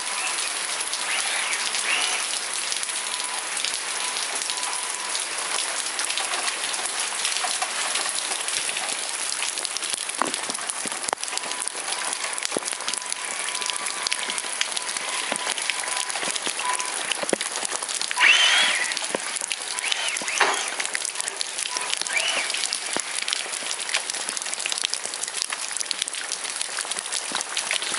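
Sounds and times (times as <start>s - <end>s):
sounds rising and falling in pitch: 0.0s - 2.4s, 18.1s - 23.6s
heavy rain on tiled paving: 0.0s - 27.9s.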